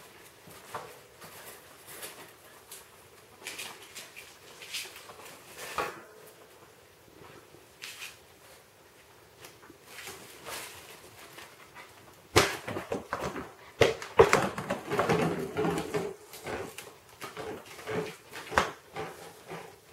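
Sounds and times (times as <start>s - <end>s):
plastic tub knocking on tile floor: 12.4s - 16.2s.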